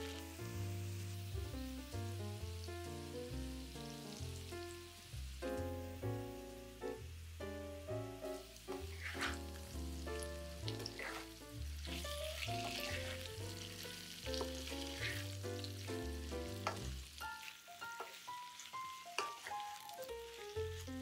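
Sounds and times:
food sizzling in oil: 0:00.0 - 0:21.0
instrumental background music: 0:00.0 - 0:21.0
stirring scrapes: 0:08.7 - 0:13.4, 0:14.3 - 0:15.8, 0:18.0 - 0:19.8.

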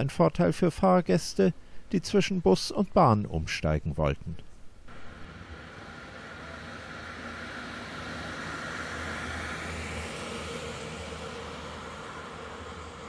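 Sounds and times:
passing vehicle rumble and hiss: 0:04.9 - 0:13.0.

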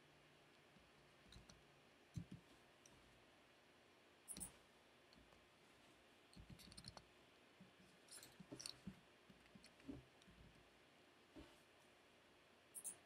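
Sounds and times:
mouse and keyboard clicks: 0:04.3 - 0:04.5, 0:06.4 - 0:07.1, 0:12.8 - 0:13.0.

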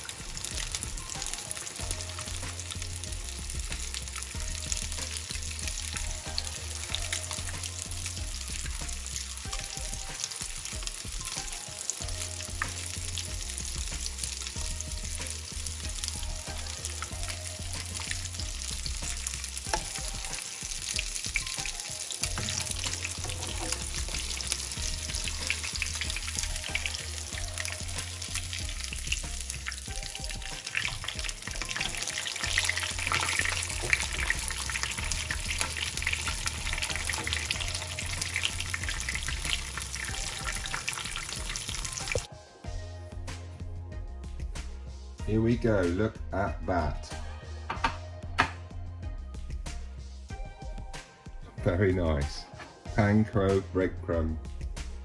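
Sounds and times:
fish frying in hot oil: 0:00.0 - 0:42.3.

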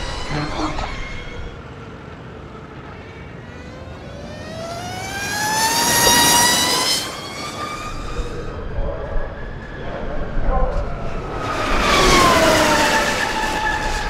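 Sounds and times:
rush of wind: 0:00.0 - 0:02.6, 0:05.1 - 0:14.0
electric motorcycle motor whining: 0:03.8 - 0:09.6.

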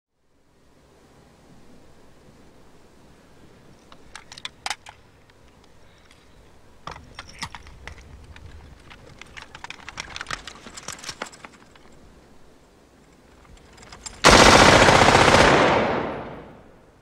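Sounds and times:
metallic rifle clicks: 0:03.8 - 0:12.1, 0:13.0 - 0:16.6
distant gunfire crackle: 0:14.2 - 0:16.8.

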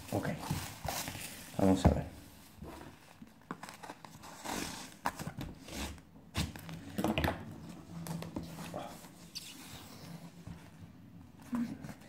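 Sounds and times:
cardboard tearing and scraping: 0:03.6 - 0:06.7.

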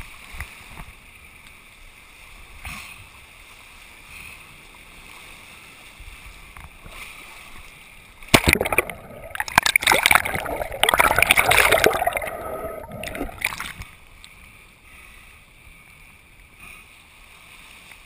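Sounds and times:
underwater crackling and bubbling: 0:08.2 - 0:14.2
water sloshing: 0:08.3 - 0:14.0.

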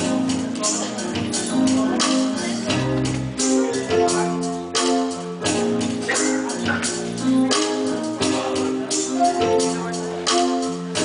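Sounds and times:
live band sustained chords: 0:00.0 - 0:11.0.

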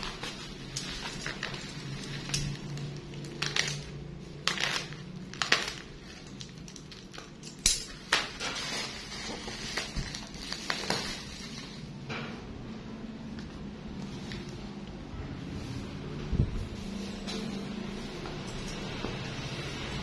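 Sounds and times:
bubble wrap crackling: 0:00.0 - 0:12.0.

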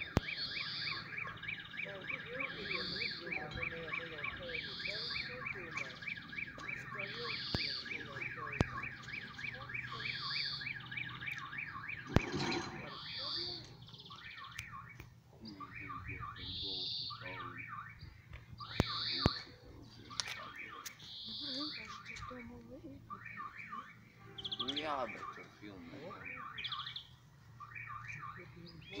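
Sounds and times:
level crossing electronic ringing: 0:00.0 - 0:14.3, 0:18.7 - 0:19.7.

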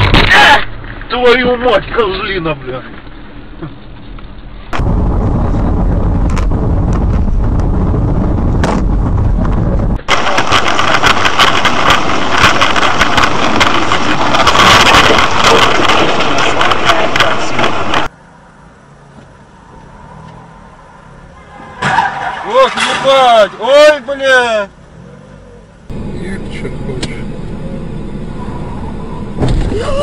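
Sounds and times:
car engines running hard: 0:03.3 - 0:23.0, 0:23.7 - 0:30.0
sharp engine cracks: 0:08.6 - 0:18.1.

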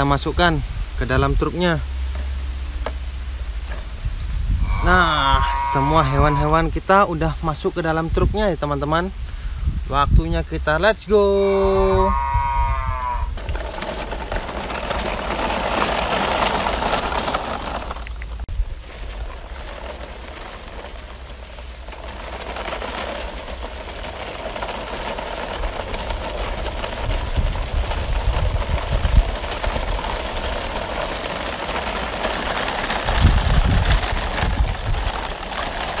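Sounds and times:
wind rumble on microphone: 0:00.0 - 0:36.0
toy wheels crunching on grit: 0:04.5 - 0:06.7, 0:11.2 - 0:36.0.

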